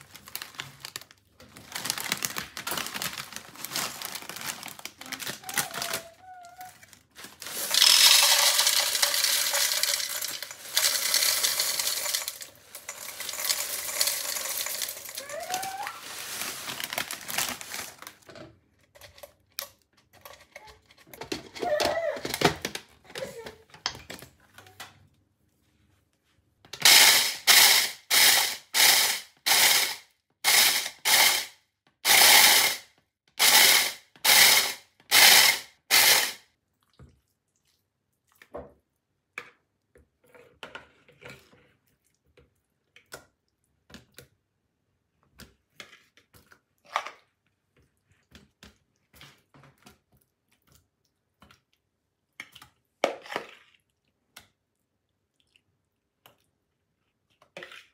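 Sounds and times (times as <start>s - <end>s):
electric food chopper bursts: 26.8s - 36.4s.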